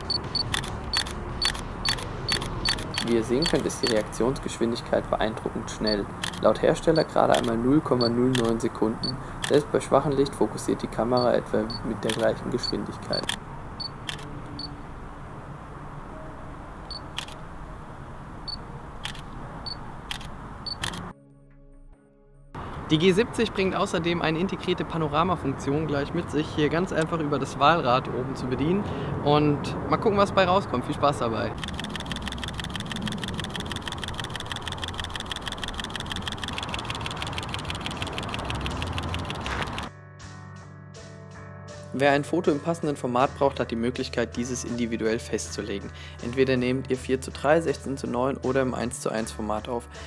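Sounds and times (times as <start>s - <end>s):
camera autofocus beeps: 0.0s - 4.0s, 7.0s - 9.6s, 11.2s - 14.7s, 16.9s - 17.4s, 18.5s - 21.0s, 31.6s - 39.9s
camera shutter double click: 0.0s - 4.0s, 6.2s - 6.4s, 8.3s - 8.6s, 13.1s - 13.4s, 20.1s - 21.1s.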